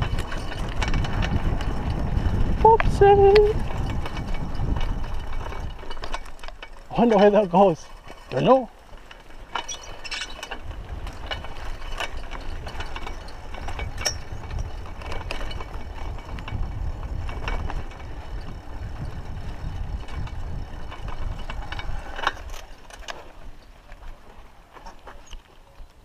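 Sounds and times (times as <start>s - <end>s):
wind on microphone: 0.0s - 6.5s, 10.3s - 22.7s
bicycle chain and frame rattling: 0.0s - 26.0s
tyres rumbling on dirt: 0.0s - 26.0s.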